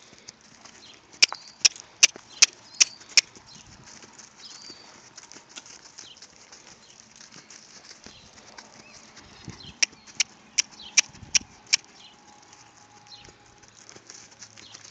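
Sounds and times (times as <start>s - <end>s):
soft hoof footfalls and rustle: 0.0s - 14.9s
sharp clicks: 9.8s - 12.0s.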